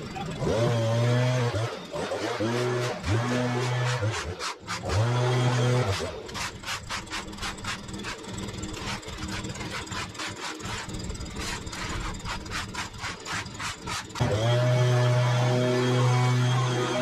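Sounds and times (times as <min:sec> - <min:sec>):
shovel scraping on concrete: 0:01.6 - 0:14.6.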